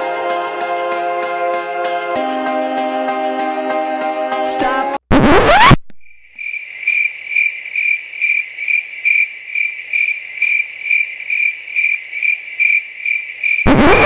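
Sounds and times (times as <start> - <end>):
cricket chirping: 6.0 - 13.7.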